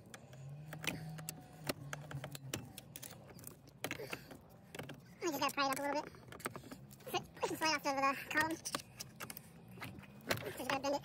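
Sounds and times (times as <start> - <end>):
plastic and metal parts knocking: 0.0 - 7.4.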